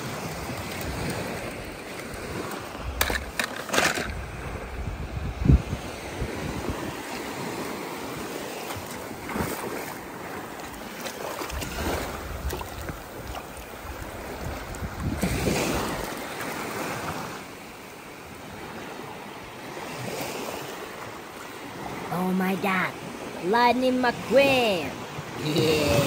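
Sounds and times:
small waves washing ashore: 0:00.0 - 0:26.0
wind on microphone: 0:04.0 - 0:08.3, 0:11.4 - 0:17.3.

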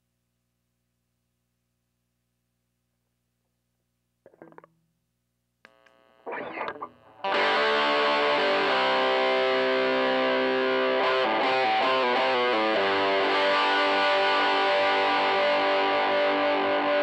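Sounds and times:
guitar pick attack: 0:05.7 - 0:16.9
distorted electric guitar chord: 0:07.1 - 0:17.0.

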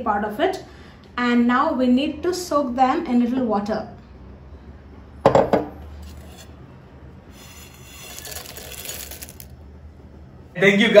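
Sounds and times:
dishware knock: 0:05.3 - 0:05.7
prawns pouring into water: 0:07.4 - 0:09.5.

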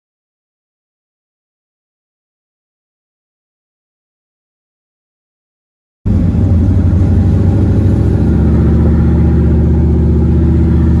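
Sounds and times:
car engine drone: 0:06.1 - 0:11.0.

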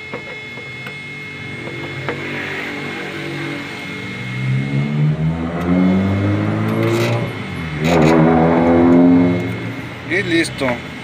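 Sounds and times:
vehicle engine accelerating: 0:01.4 - 0:10.9.

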